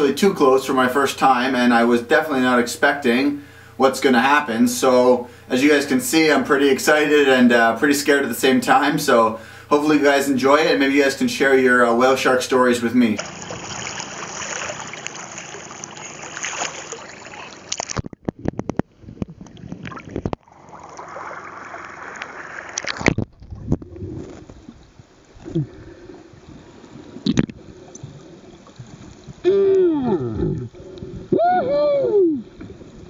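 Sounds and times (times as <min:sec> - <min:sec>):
seawater splashing and sloshing: 0:12.9 - 0:18.2, 0:18.8 - 0:23.5
muffled underwater clicks: 0:17.7 - 0:20.4, 0:27.2 - 0:28.2
muffled voice through a snorkel: 0:29.5 - 0:30.8.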